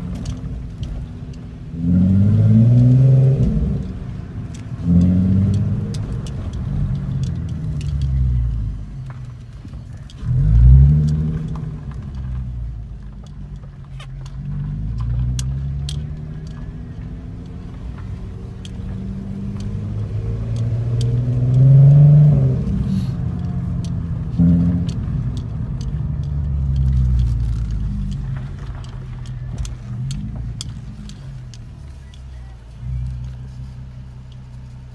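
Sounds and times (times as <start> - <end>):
car engine revving: 0.0 - 34.9.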